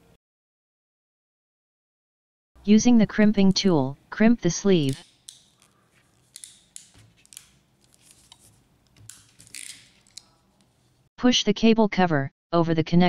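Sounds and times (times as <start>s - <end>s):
crimping tool clicks and snaps: 4.8s - 11.0s.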